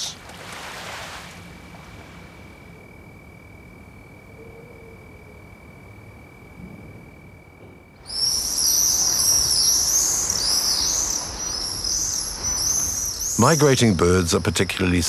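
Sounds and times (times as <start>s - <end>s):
flock of birds chirping: 8.0s - 15.0s.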